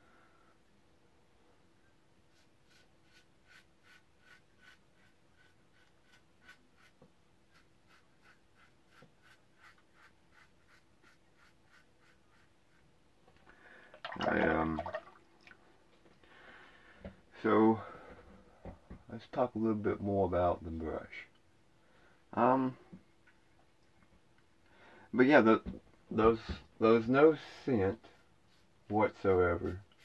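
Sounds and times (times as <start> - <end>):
razor scraping stubble: 2.3 - 12.8.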